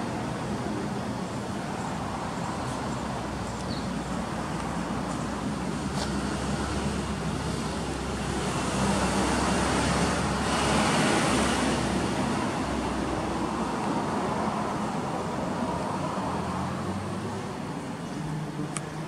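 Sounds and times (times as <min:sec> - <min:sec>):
road traffic noise: 0:00.0 - 0:19.0
vehicle passing by: 0:05.8 - 0:17.4.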